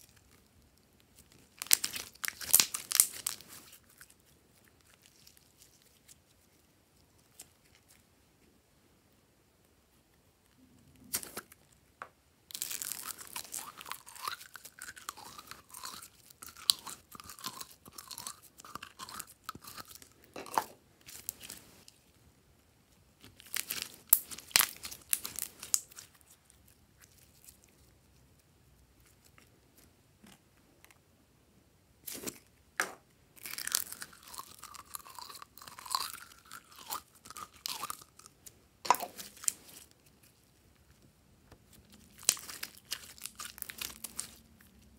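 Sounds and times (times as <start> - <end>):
slime crackling and squelching: 0.0 - 8.0, 12.5 - 22.0, 23.2 - 28.1, 33.4 - 40.6, 41.7 - 44.9.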